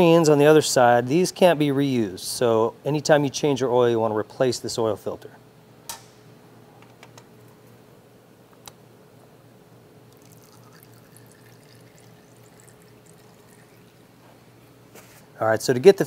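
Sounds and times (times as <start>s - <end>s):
oil trickling and dripping: 10.1s - 14.2s.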